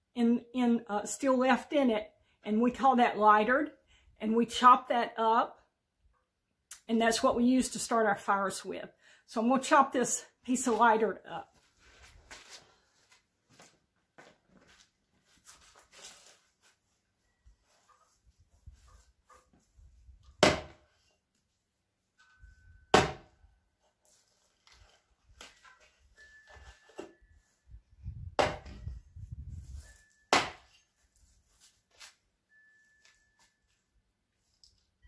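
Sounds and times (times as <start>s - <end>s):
axe chopping wood: 20.4s - 20.8s, 22.9s - 23.3s, 28.4s - 28.8s, 30.3s - 30.7s.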